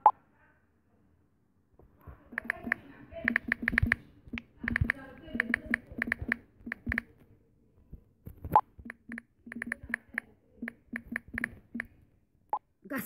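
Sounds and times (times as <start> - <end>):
phone keyboard key clicks: 2.3 - 7.1, 8.3 - 12.0.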